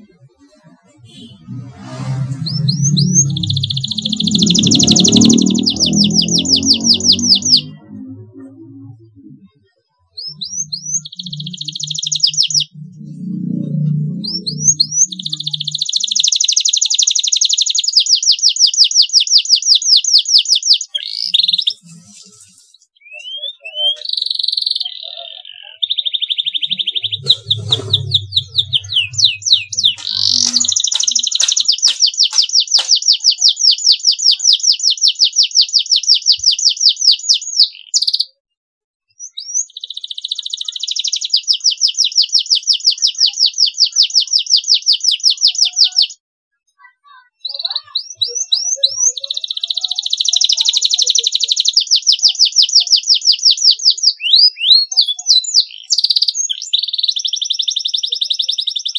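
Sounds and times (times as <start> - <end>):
canary singing trills: 0.0 - 38.4, 39.1 - 46.2, 47.3 - 58.9
low hum: 1.0 - 9.5, 12.6 - 15.6, 26.9 - 31.1.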